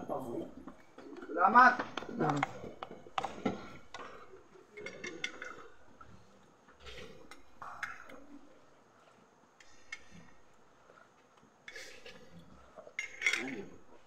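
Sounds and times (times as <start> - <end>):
cutlery and mug clinking on plate: 13.0 - 13.7.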